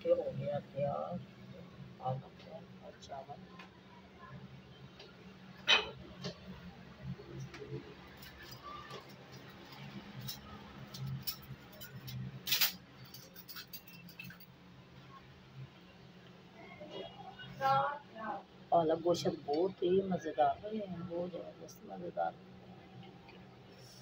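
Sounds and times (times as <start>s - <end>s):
low steady hum: 0.0s - 24.0s
light clicks and clinks: 8.1s - 14.5s.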